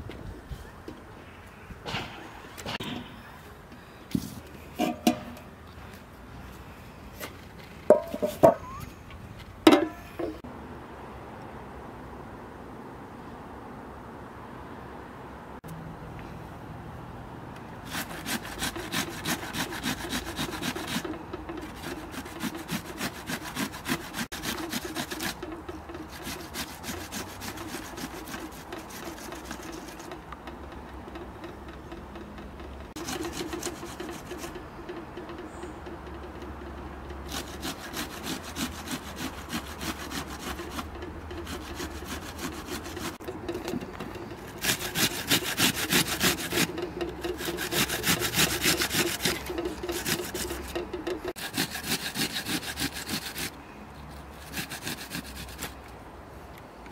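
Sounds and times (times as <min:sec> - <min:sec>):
onion rasping on grater: 0:17.8 - 0:30.2, 0:33.0 - 0:34.6, 0:37.2 - 0:53.6, 0:54.3 - 0:55.8.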